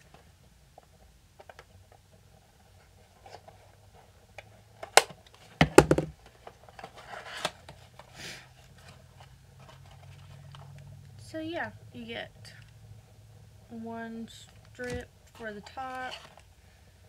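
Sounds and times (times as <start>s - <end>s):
sharp knocks: 5.6s - 6.1s.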